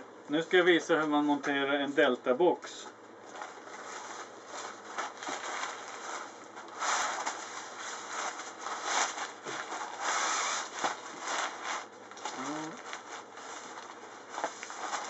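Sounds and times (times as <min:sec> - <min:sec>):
plastic wrapping crinkling: 0:03.2 - 0:15.0.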